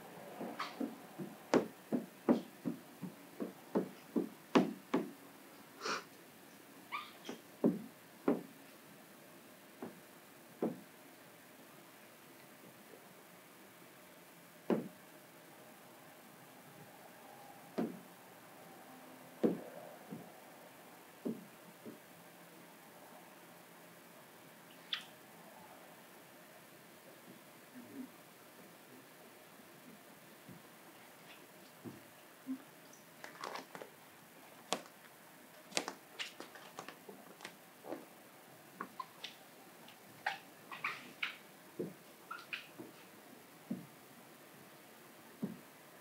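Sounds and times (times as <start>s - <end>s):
faint steady hum: 0.0s - 46.0s
wet film squishing and squeaking: 32.9s - 35.0s, 35.7s - 38.0s, 38.8s - 41.4s, 42.3s - 42.8s.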